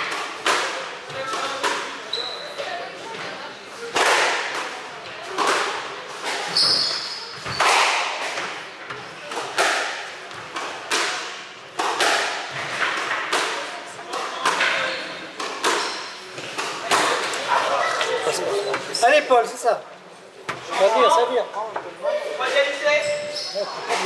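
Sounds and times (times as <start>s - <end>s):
high squeak: 6.5s - 7.6s
squash ball struck by rackets: 9.3s - 17.3s.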